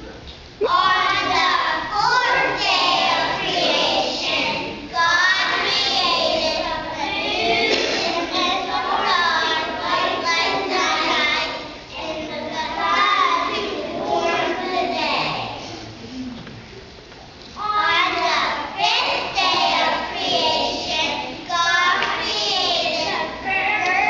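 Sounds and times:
children singing together: 0.6s - 15.7s, 17.6s - 24.0s.

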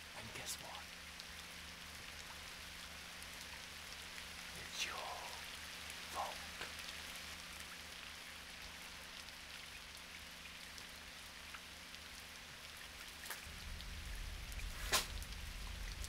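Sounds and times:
steady hiss: 0.0s - 16.0s
low hum: 13.4s - 16.0s.

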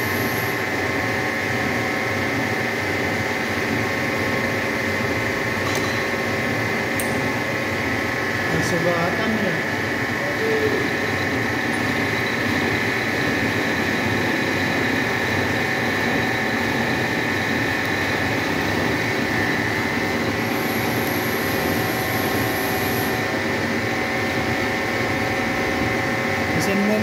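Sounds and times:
thin high whine: 8.5s - 15.0s, 15.6s - 24.6s
milling machine cutting metal: 15.1s - 23.4s.

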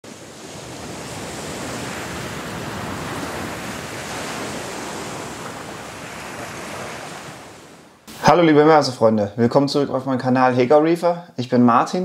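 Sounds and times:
ocean surf rushing: 0.0s - 8.8s.

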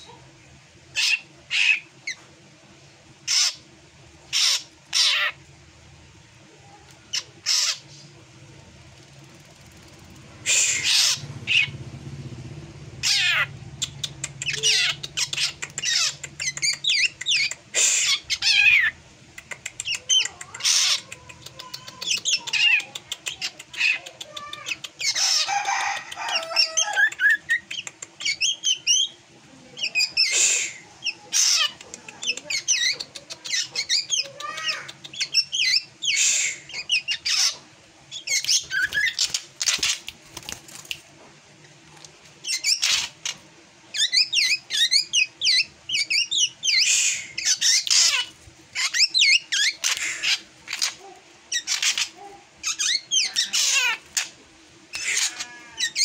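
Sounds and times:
bird harsh rasping calls: 3.3s - 3.7s, 4.3s - 5.4s, 7.2s - 8.0s, 10.4s - 11.8s, 13.0s - 19.0s, 19.8s - 29.1s, 29.9s - 40.1s, 42.4s - 54.3s, 54.9s - 56.0s.

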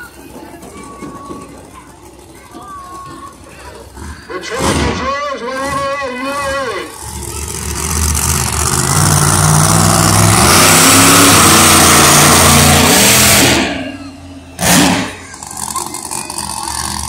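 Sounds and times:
truck engine revving hard: 3.6s - 17.0s.

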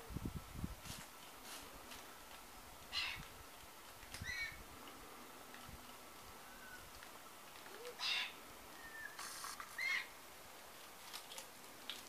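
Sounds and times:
birds whistling calls: 7.8s - 10.1s.

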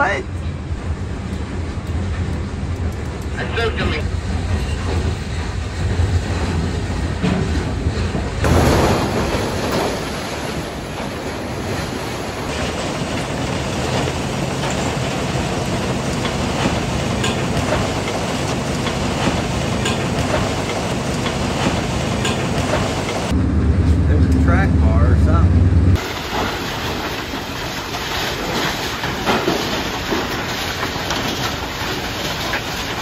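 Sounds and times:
car shredder metallic clatter: 12.5s - 23.3s.

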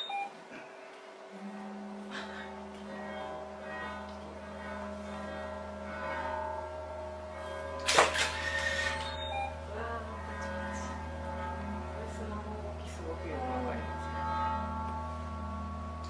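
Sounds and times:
low hum: 0.0s - 16.0s
high squealing tones: 1.4s - 11.7s
metal plate ringing: 2.1s - 16.0s.

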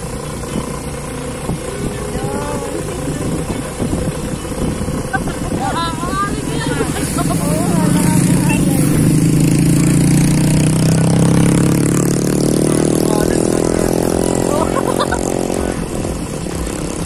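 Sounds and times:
wind rumble on microphone: 0.0s - 12.1s
motorcycle engine accelerating: 0.0s - 17.0s.

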